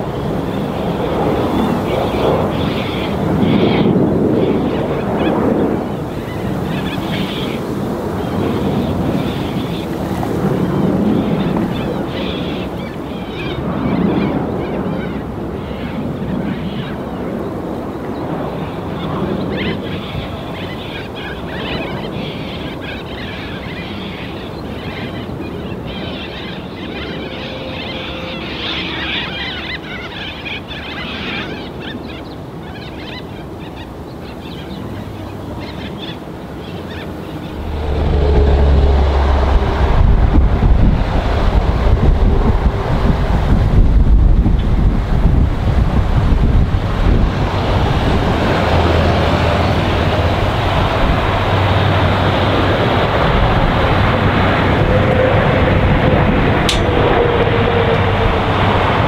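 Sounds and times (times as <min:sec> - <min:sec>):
jet engine rumble and hiss: 0:00.0 - 0:59.0
wind on microphone: 0:00.0 - 0:59.0
loud low rumble: 0:37.2 - 0:59.0.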